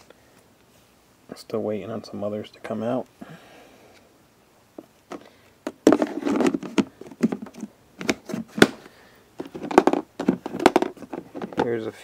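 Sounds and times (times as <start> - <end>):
plastic lid snapping: 5.7 - 11.7.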